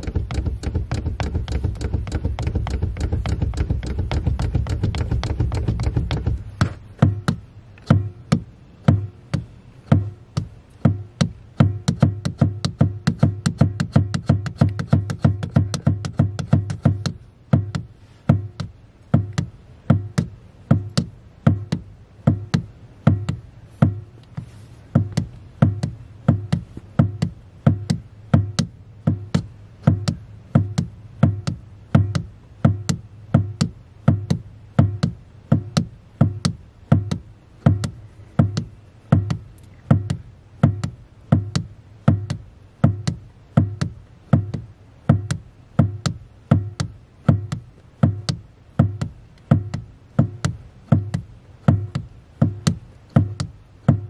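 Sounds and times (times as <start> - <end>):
electronic beat music: 7.0 - 24.2.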